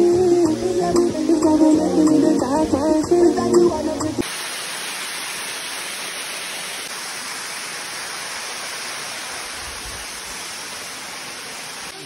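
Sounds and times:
waterfall rushing: 4.2s - 12.0s.

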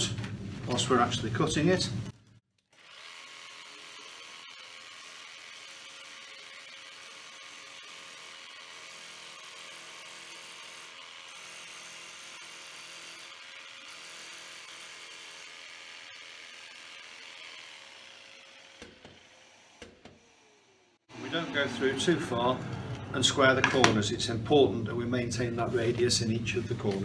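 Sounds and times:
jigsaw cutting acrylic: 2.6s - 21.1s.

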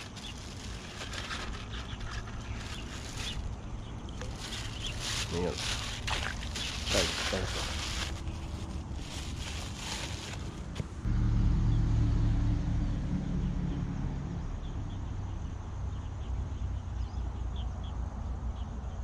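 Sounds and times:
plastic bag and grass rustling: 0.0s - 11.1s
passing vehicle engine drone: 11.0s - 16.8s.

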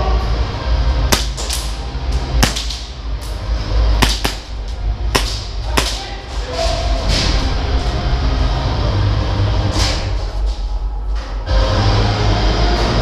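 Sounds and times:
low rumble: 0.0s - 13.0s
airsoft gun shots: 1.1s - 1.7s, 2.4s - 3.0s, 4.0s - 6.1s.

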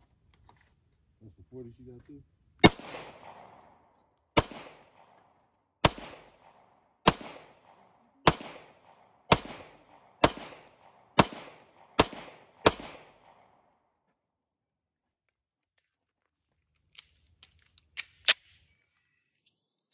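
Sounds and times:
pistol shots with echo: 2.6s - 13.6s.

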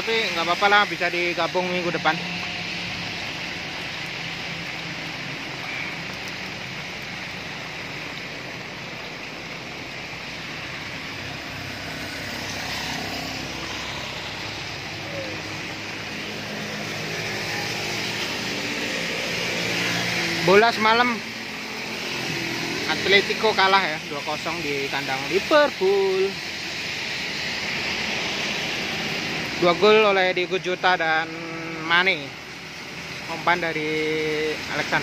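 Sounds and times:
rain and traffic on wet road: 0.0s - 35.0s
vehicle engines passing: 0.0s - 35.0s.

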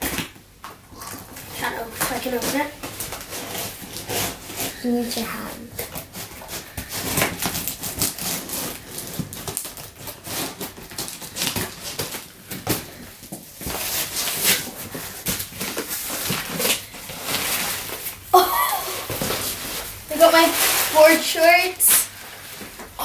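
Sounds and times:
cardboard and packaging rustling: 0.0s - 23.0s
scissors cutting packing tape: 2.0s - 4.8s, 5.6s - 18.0s.

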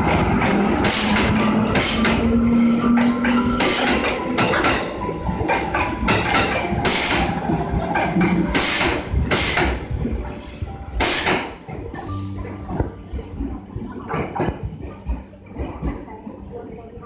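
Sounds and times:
wheels clunking over rail joints: 0.0s - 9.9s
electric train running past: 0.0s - 11.1s.

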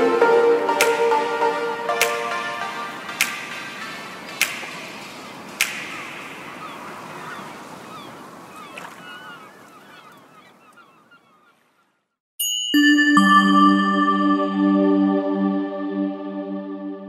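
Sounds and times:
birds calling: 2.6s - 12.2s
sharp clicks: 3.2s - 6.3s.

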